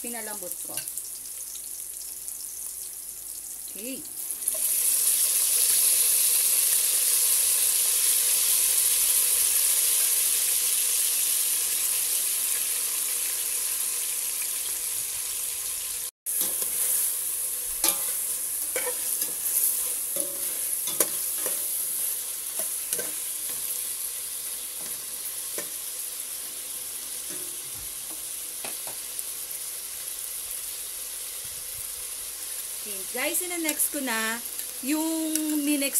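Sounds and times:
meat sizzling in hot oil: 0.0s - 35.9s
spatula scraping a pot: 17.8s - 21.9s.

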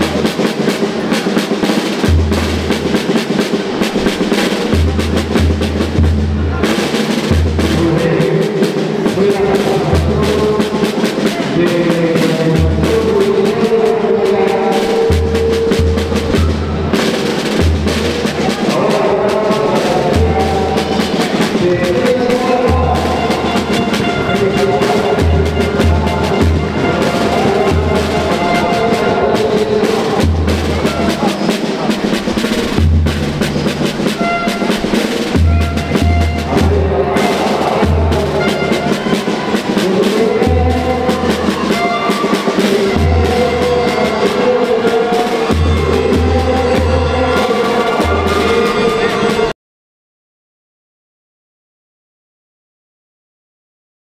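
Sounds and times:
snare and bass drums: 0.0s - 49.5s
deep bass notes: 17.6s - 31.3s.

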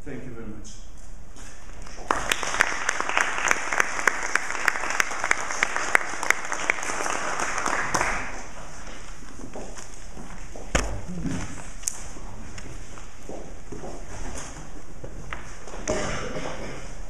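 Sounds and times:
close loud claps: 1.8s - 8.5s
audience applauding: 1.8s - 8.6s.

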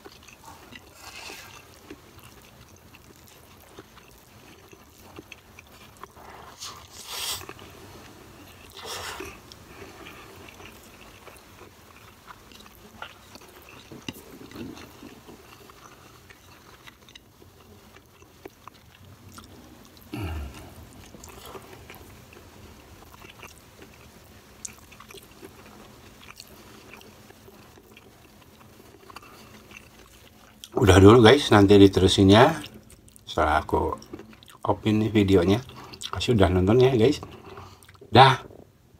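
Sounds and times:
person chewing food: 0.0s - 30.8s, 32.4s - 34.6s, 35.5s - 36.2s, 37.2s - 38.7s.

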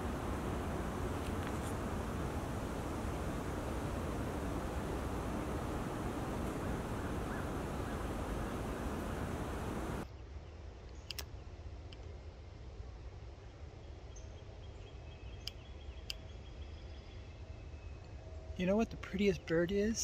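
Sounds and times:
faint high bird calls: 0.0s - 10.2s
wind-like hiss: 0.0s - 19.7s
sharp clicks: 11.0s - 11.3s.

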